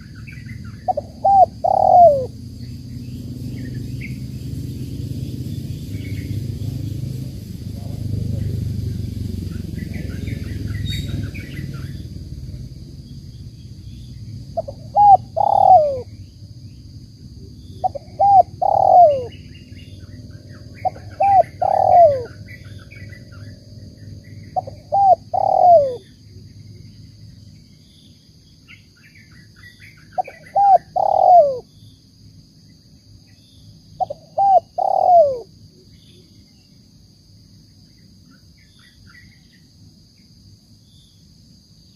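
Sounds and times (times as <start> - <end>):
dove cooing: 0.6 - 2.5, 14.5 - 16.2, 17.4 - 19.4, 20.7 - 23.5, 24.4 - 26.1, 30.2 - 31.7, 34.0 - 35.5.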